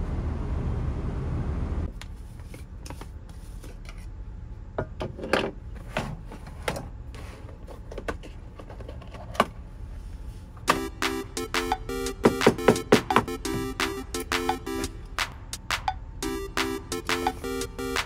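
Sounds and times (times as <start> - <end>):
steady low rumble: 0.0 - 1.9, 13.3 - 18.0.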